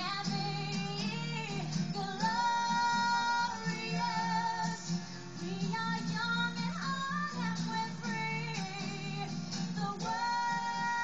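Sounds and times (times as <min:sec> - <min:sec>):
acoustic guitar: 0:00.0 - 0:11.0
woman singing pop melody: 0:00.0 - 0:11.0.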